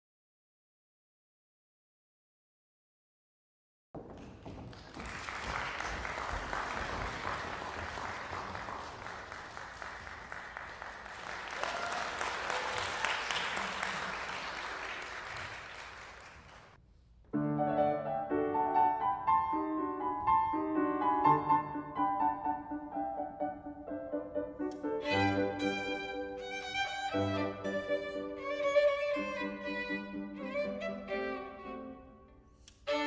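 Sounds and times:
audience applauding: 4.0 - 16.8
grand piano: 17.3 - 33.0
violin: 24.7 - 33.0.

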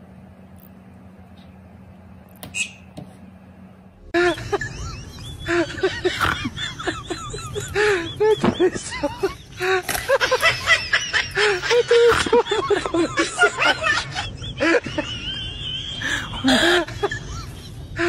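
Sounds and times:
low hum: 0.0 - 18.0
high-pitched laughing: 4.1 - 18.0.

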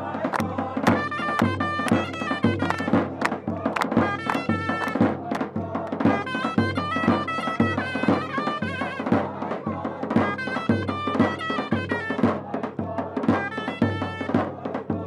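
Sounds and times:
drum beating: 0.0 - 15.0
shrill shawm melody: 1.1 - 3.3, 6.1 - 12.3.

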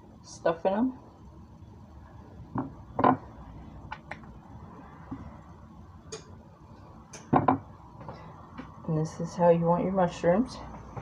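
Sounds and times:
mushrooms knocking on ceramic plate: 2.6 - 3.2, 7.2 - 7.7.

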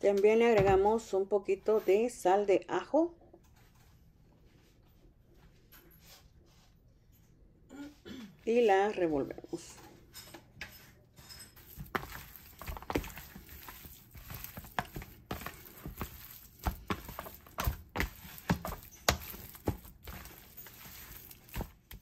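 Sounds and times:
meat slapping in a tray: 11.7 - 22.0.

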